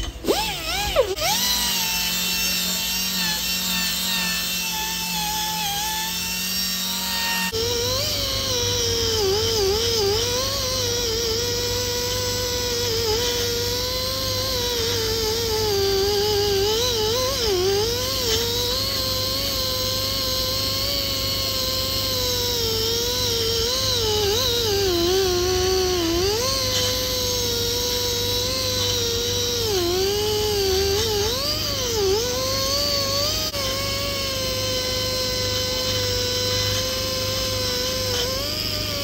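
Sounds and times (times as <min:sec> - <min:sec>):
rotary tool wire brush whining: 0:00.0 - 0:39.0.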